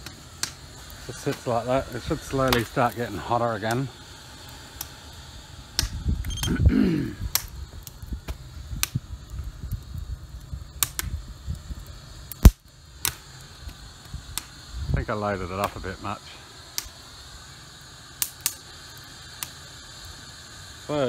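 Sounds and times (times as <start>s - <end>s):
steady low rumble: 0.0s - 18.2s
wood fire crackling and popping: 0.0s - 21.0s
sharp click: 5.8s - 6.5s, 7.3s - 7.6s, 10.8s - 11.2s.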